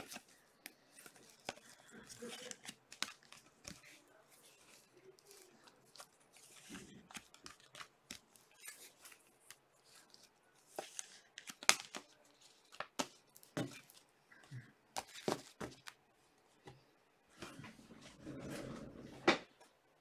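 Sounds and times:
trading cards rustling and clicking: 0.0s - 14.1s, 14.9s - 16.0s.

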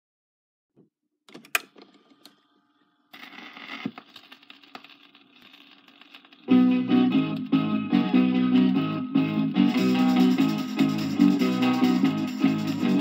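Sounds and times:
record player controls clicking: 1.3s - 2.4s
record player hum and hiss: 1.3s - 11.0s
needle dropping on record: 3.2s - 6.6s.

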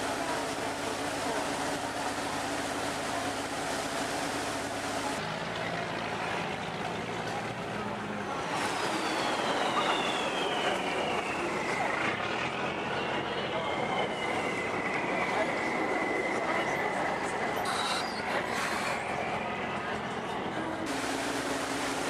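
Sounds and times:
boat engine running: 0.0s - 6.7s, 20.9s - 22.0s
high whine falling in pitch: 8.8s - 12.0s.

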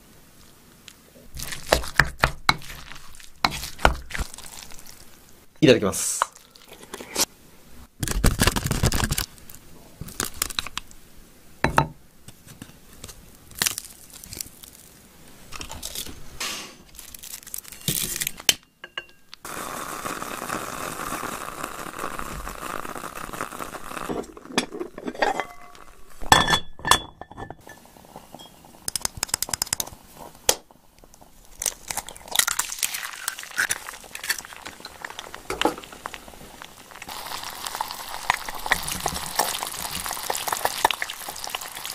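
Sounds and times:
steady hiss: 0.0s - 8.0s, 19.3s - 26.4s, 27.6s - 41.9s
egg sizzling in oil: 1.3s - 5.5s, 19.4s - 26.3s, 27.6s - 41.9s
chewing and crunching: 31.5s - 35.4s, 36.9s - 41.9s.

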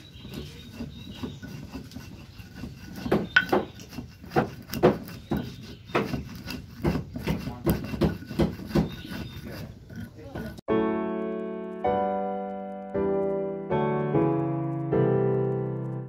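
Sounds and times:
stone pestle pounding in mortar: 0.0s - 10.7s.

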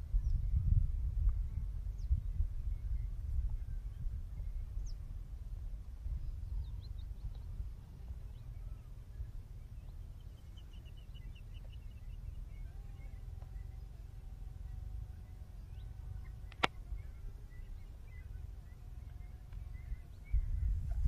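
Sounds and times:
faint steady tone: 0.0s - 21.0s
wind rumbling on microphone: 0.0s - 21.0s
bird chirps: 6.2s - 21.0s.

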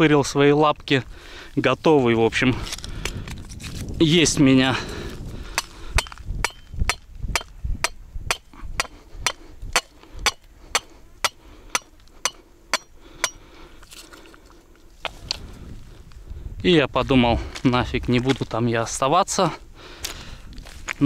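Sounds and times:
rock knocking on metal stake: 6.0s - 13.4s.

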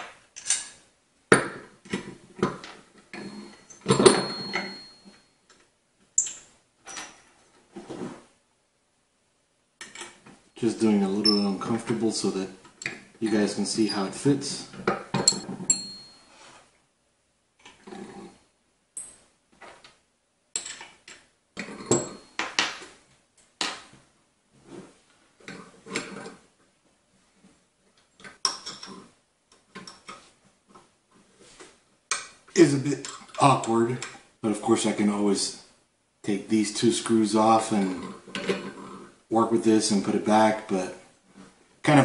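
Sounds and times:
light metallic clinks: 3.1s - 5.2s, 15.2s - 16.3s.

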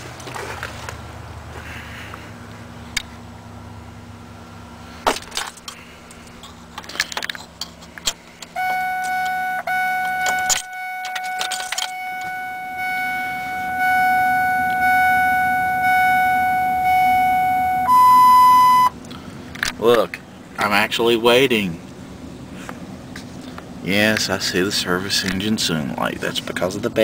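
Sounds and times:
dashboard warning tone: 8.5s - 19.0s
keys jangling: 10.3s - 12.0s.

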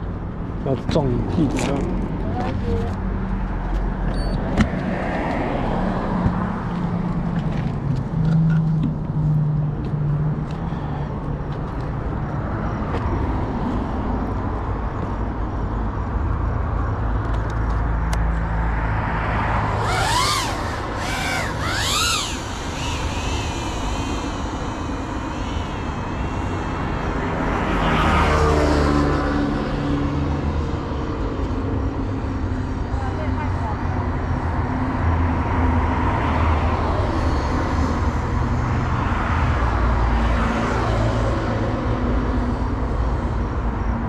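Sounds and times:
quadcopter motors whining: 9.3s - 13.2s, 19.3s - 33.5s, 34.9s - 43.3s.

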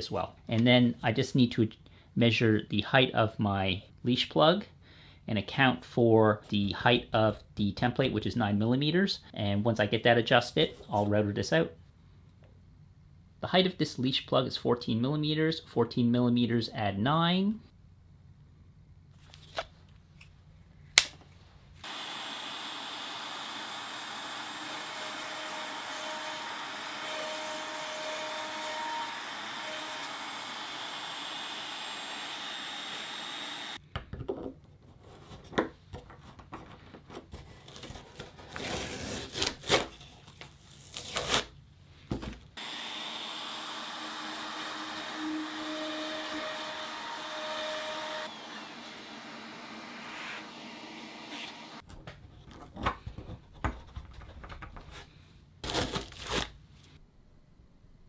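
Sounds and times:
router whirring: 21.8s - 33.8s, 42.6s - 51.8s
shop vacuum: 21.8s - 33.8s, 42.6s - 51.8s.

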